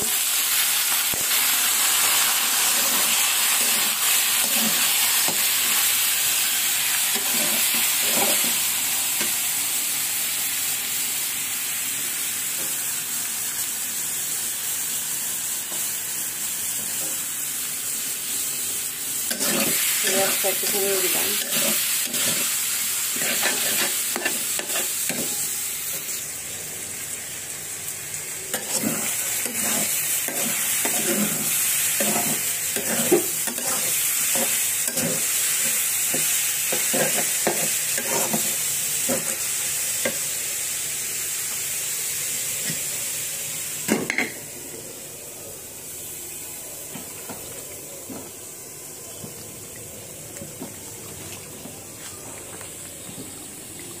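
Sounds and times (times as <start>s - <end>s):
greens sizzling in a pan: 0.0s - 54.0s
spatula scraping a pan: 7.1s - 8.6s, 19.3s - 25.5s, 28.5s - 39.4s.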